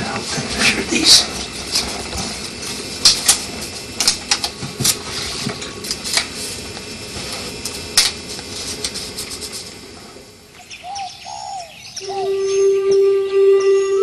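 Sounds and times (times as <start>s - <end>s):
room noise: 0.0s - 10.7s.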